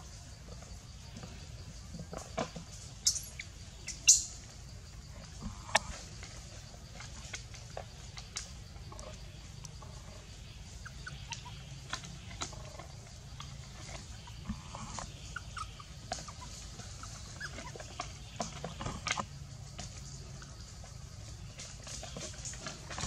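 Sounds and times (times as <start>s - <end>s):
macaques squeaking and clicking: 2.0s - 4.5s, 7.0s - 19.9s.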